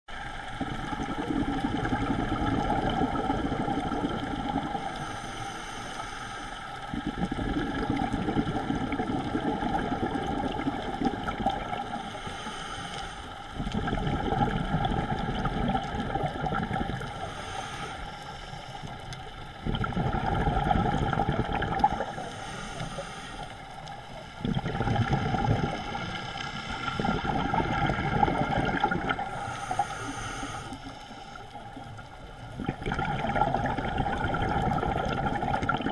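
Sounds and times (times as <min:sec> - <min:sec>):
diver exhaling bubbles: 0:00.5 - 0:05.3, 0:06.9 - 0:12.9, 0:13.6 - 0:18.0, 0:19.6 - 0:23.4, 0:24.3 - 0:30.6, 0:31.6 - 0:35.9
regulator inhale hiss: 0:04.6 - 0:07.0, 0:11.7 - 0:13.6, 0:16.9 - 0:19.6, 0:21.8 - 0:24.4, 0:25.6 - 0:27.8, 0:29.2 - 0:32.5.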